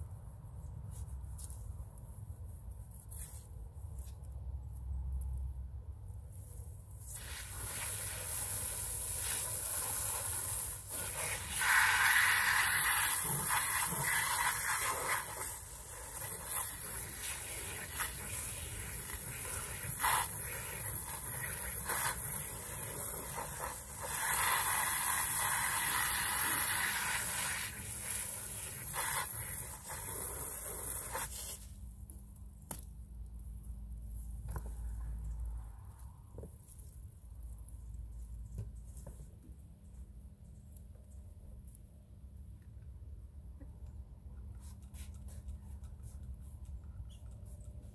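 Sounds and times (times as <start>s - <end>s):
hose nozzle spraying water: 7.0s - 31.6s.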